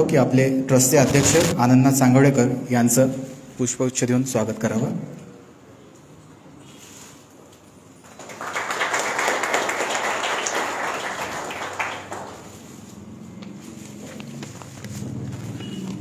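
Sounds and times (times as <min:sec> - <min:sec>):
small group applauding: 0:08.0 - 0:12.7.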